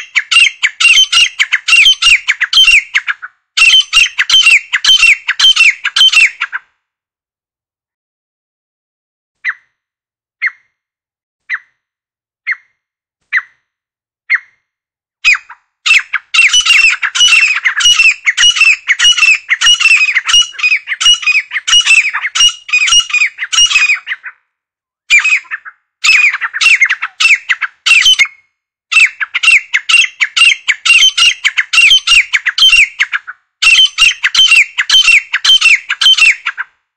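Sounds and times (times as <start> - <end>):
francolin calling: 0.0 - 6.5, 15.3 - 24.3, 25.1 - 36.6.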